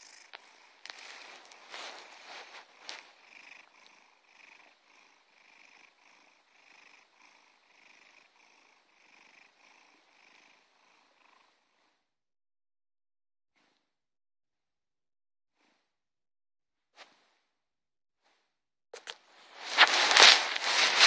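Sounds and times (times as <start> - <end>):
cat purring: 0.0 - 12.1.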